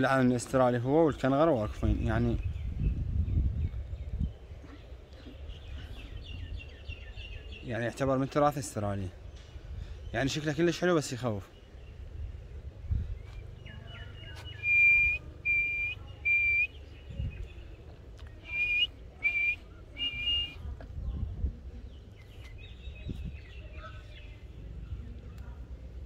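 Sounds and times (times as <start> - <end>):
faint high chirps: 13.7 - 17.5, 18.4 - 20.6
short whistled notes: 14.5 - 16.8, 18.5 - 20.6.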